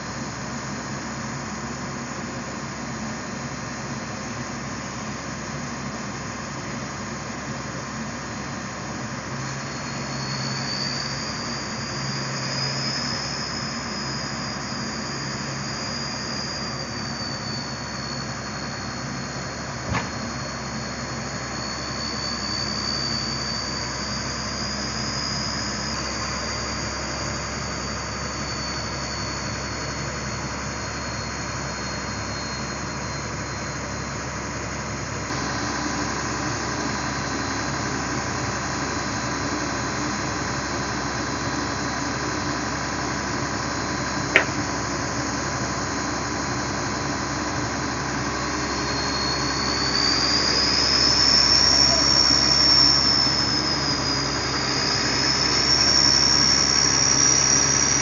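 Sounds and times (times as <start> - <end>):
excavator engine and hydraulics: 0.0 - 58.0
high whine: 0.0 - 58.0
sharp knock: 19.9 - 20.2, 44.4 - 44.7
truck engine running: 34.3 - 48.8.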